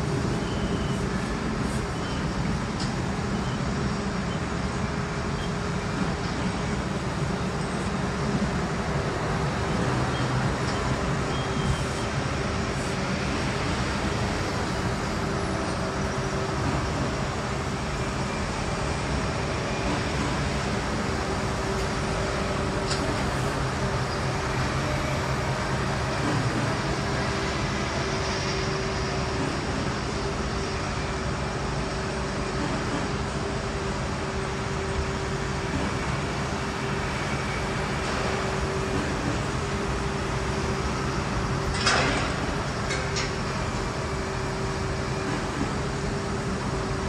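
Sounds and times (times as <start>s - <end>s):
urban traffic noise: 0.0s - 47.0s.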